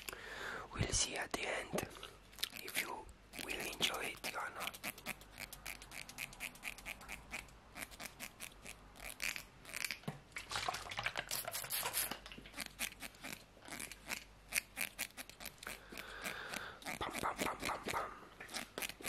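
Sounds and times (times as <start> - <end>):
comb teeth clicking: 2.3 - 10.0, 11.3 - 19.0
comb brushing hiss: 11.3 - 12.2.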